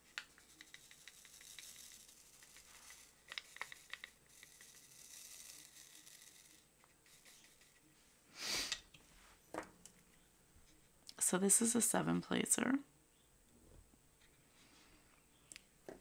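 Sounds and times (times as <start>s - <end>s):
small beads rattling in plastic tray: 0.3s - 7.8s.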